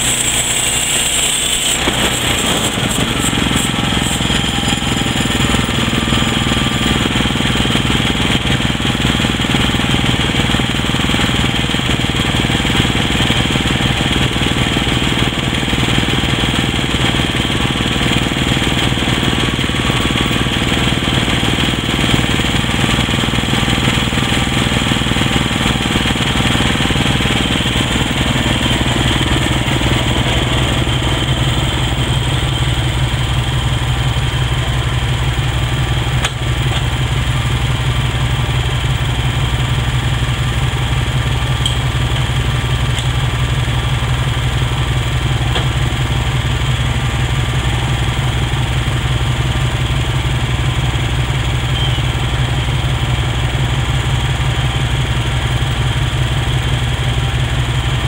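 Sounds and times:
bandsaw blade cutting log: 0:00.0 - 0:33.0
gas engine running: 0:00.0 - 0:58.0.

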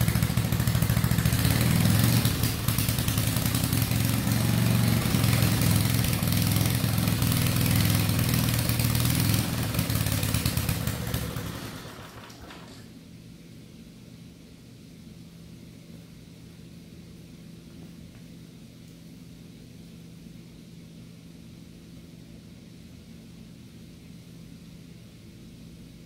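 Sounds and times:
small engine running: 0:00.0 - 0:12.7.

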